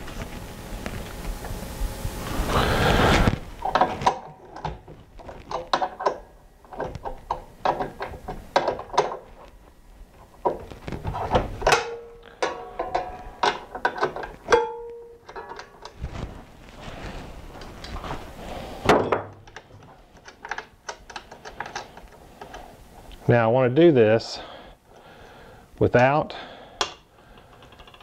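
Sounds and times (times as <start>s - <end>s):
metal parts clicking and rattling: 3.7s - 9.5s, 10.4s - 16.3s, 19.0s - 22.6s, 27.4s - 28.0s.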